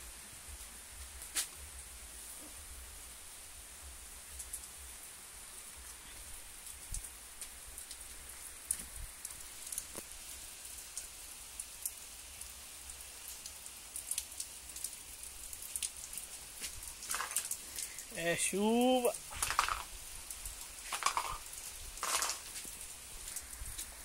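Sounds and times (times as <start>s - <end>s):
steady rain falling: 0.0s - 24.0s
drops ticking on wet concrete: 13.4s - 18.2s, 19.0s - 23.9s.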